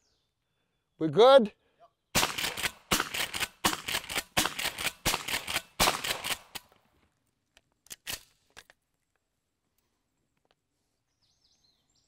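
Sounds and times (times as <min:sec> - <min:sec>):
shotgun shots: 0:02.2 - 0:06.7.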